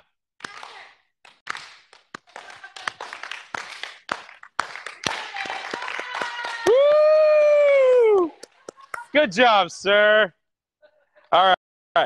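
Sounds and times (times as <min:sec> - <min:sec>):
hands clapping: 0:00.4 - 0:07.0, 0:07.7 - 0:09.1
person shouting woo: 0:06.3 - 0:08.4.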